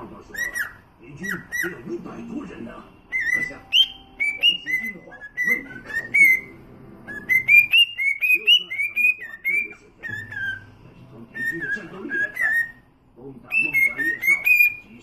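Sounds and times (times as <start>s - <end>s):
cockatiel whistling a tune: 0.3s - 1.9s, 3.1s - 12.9s, 13.5s - 15.0s.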